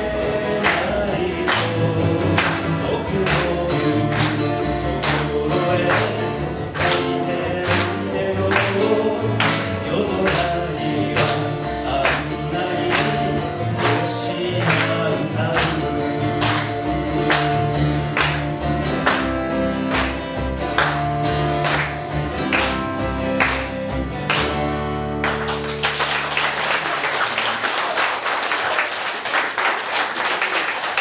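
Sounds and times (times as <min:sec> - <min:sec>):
double bass notes: 0:00.0 - 0:25.7
acoustic guitars strumming: 0:00.0 - 0:27.6
audience applause: 0:05.9 - 0:07.9, 0:15.6 - 0:19.3, 0:19.9 - 0:24.6, 0:25.2 - 0:31.0.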